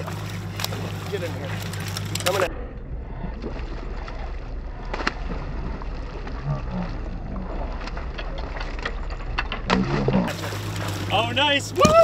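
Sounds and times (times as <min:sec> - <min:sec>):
boat engine idling: 0:00.0 - 0:12.0
water wash: 0:00.0 - 0:12.0
fish splashing at surface: 0:09.7 - 0:12.0.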